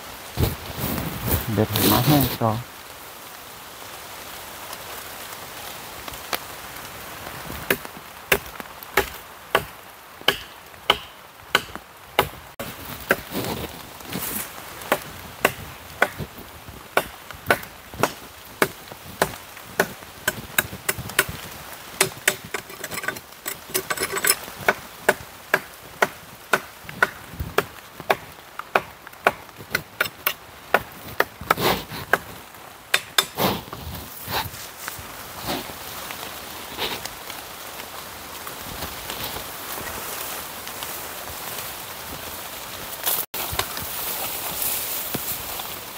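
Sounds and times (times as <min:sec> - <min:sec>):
wood being chopped by hand: 0:07.7 - 0:09.7, 0:10.3 - 0:12.4, 0:14.9 - 0:16.3, 0:17.0 - 0:21.4, 0:22.0 - 0:32.3, 0:32.9 - 0:33.6.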